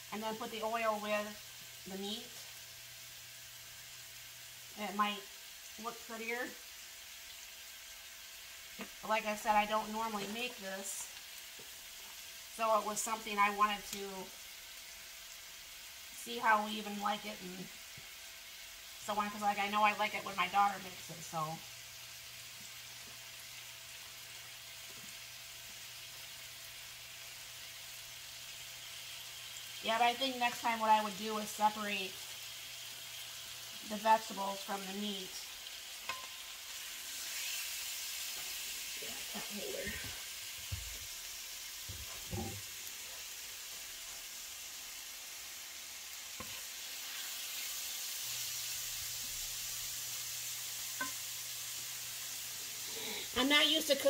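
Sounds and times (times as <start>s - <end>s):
chicken sizzling in oil: 0.0s - 54.0s
wooden spoon knocking on pan: 41.9s - 42.6s.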